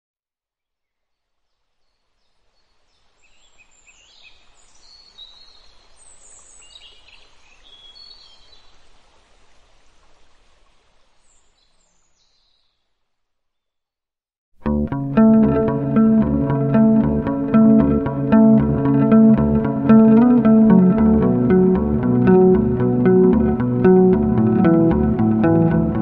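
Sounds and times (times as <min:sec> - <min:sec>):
steady background hiss: 0:01.6 - 0:12.3.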